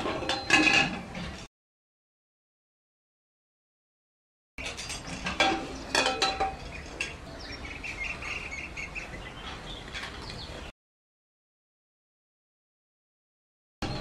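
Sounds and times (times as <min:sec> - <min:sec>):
small birds chirping: 0:05.6 - 0:10.7.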